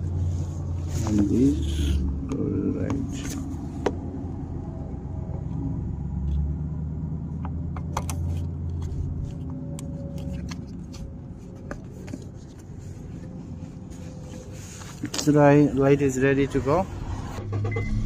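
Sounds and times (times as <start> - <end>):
steady low rumble: 10.7 - 18.0.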